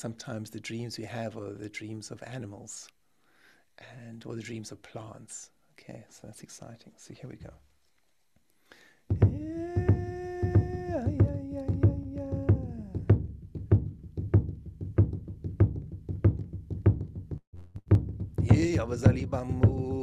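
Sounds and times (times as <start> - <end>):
drum beating steadily: 9.1 - 20.0
man chanting: 9.2 - 13.1, 18.4 - 20.0.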